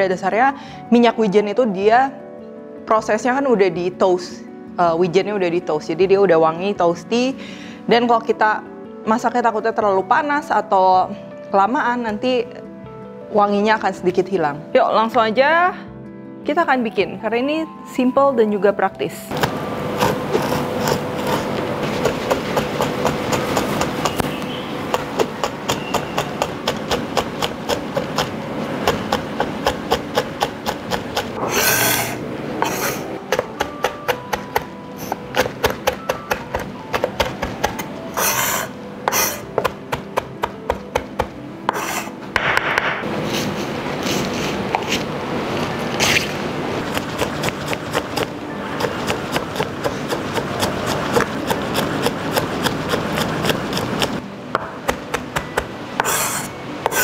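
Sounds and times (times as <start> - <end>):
knife chopping on wooden board: 19.4 - 43.0, 46.8 - 57.0
knife scraping across board: 20.0 - 22.1, 30.9 - 33.1, 38.2 - 39.6, 41.7 - 42.2, 43.2 - 45.1, 45.9 - 46.4, 56.0 - 57.0.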